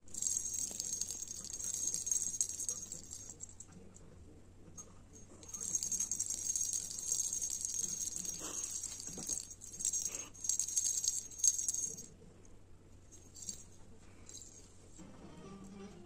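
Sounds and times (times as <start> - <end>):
cat toy ball bell jingling: 0.1 - 3.7, 5.2 - 12.1, 13.1 - 14.7.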